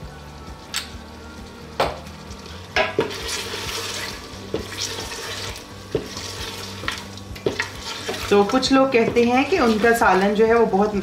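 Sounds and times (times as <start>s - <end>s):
meat sizzling as it fries: 0.0s - 11.0s
wooden spoon scraping pot: 2.8s - 10.5s.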